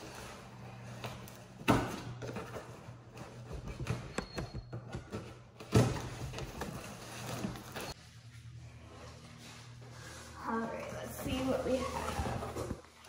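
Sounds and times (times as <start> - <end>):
cardboard and tape rustling: 4.8 - 8.0, 9.1 - 13.0.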